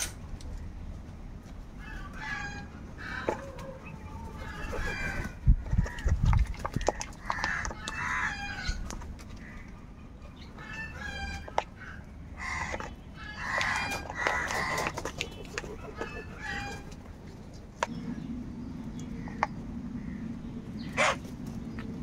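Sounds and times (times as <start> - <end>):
beaks pecking plastic bowl: 5.0 - 9.5, 11.3 - 17.0
crows cawing: 6.9 - 8.8, 10.9 - 14.9.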